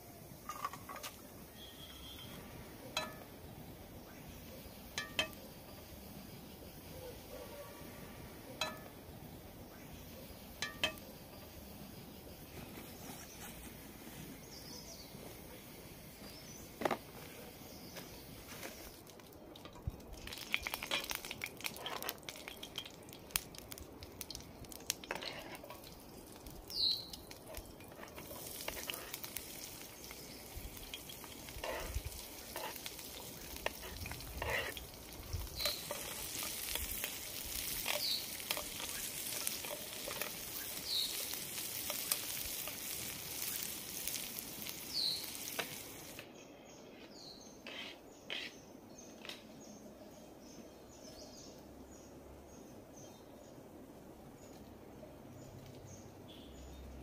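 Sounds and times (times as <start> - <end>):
onion sizzling in oil: 0.0 - 46.2
bird chirps: 1.4 - 7.6, 26.7 - 27.4, 37.8 - 41.4, 44.8 - 45.4.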